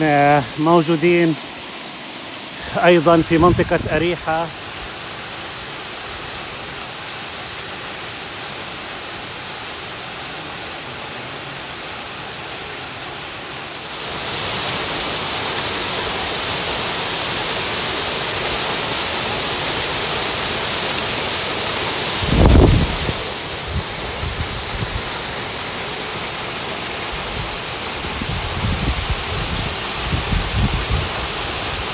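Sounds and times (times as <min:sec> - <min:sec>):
waterfall rushing: 0:00.0 - 0:31.9.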